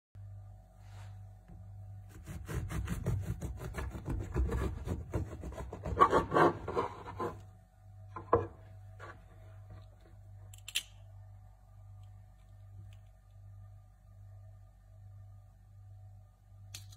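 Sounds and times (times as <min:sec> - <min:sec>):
bread knife sawing through crust: 0:02.1 - 0:07.4.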